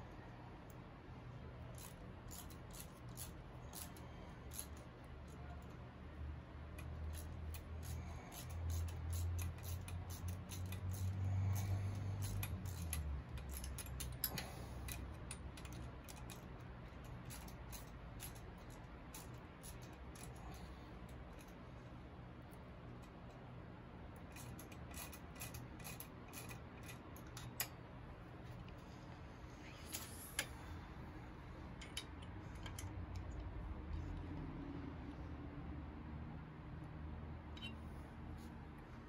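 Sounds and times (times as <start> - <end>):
metal clicks and scrapes: 1.6 - 5.8, 6.7 - 23.5, 24.2 - 30.7, 31.3 - 34.2, 37.5 - 37.8.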